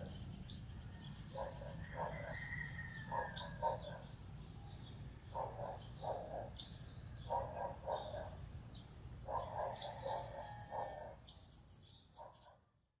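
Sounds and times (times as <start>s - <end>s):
lower bird call in pairs: 0.0s - 12.6s.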